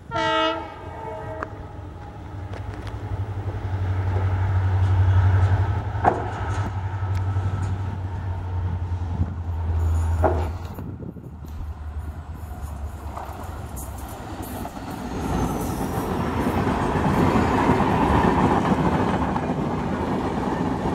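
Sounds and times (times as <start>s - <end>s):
locomotive horn: 0.0s - 2.2s.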